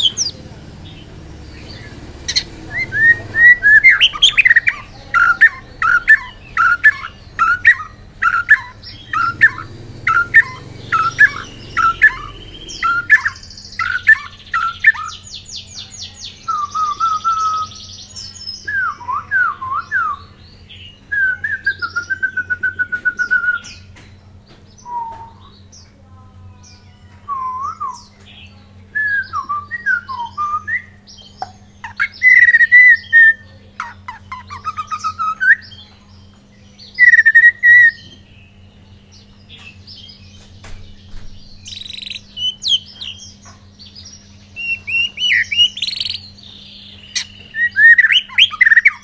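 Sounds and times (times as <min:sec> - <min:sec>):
bird singing whistled notes: 0:00.0 - 0:15.6, 0:16.3 - 0:23.9, 0:24.7 - 0:25.7, 0:27.2 - 0:28.2, 0:28.9 - 0:33.5, 0:36.8 - 0:38.2, 0:40.9 - 0:43.4, 0:44.0 - 0:49.0.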